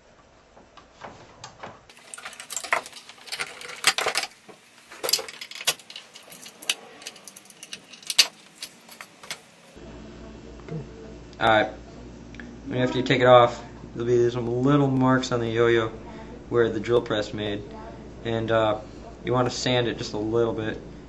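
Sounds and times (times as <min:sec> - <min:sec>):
handling clicks and knocks: 0:01.0 - 0:09.5
light metallic jangles: 0:05.0 - 0:09.4.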